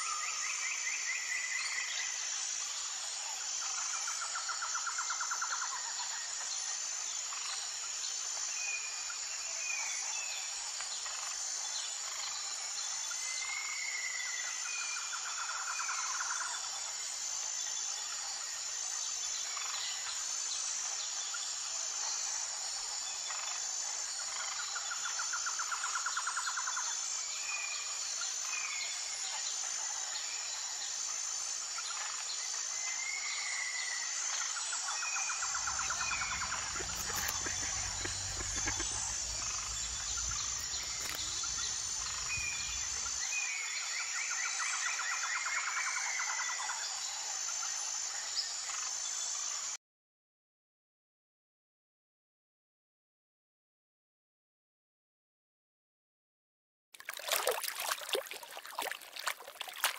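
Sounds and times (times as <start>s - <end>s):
high-pitched insect chorus: 0.0s - 49.7s
birds trilling and chirping: 35.4s - 43.3s.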